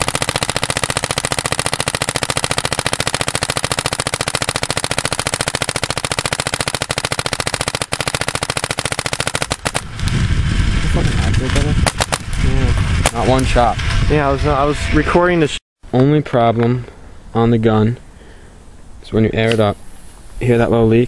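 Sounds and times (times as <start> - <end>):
paintball marker firing rapidly: 0.0 - 10.1, 11.5 - 12.4.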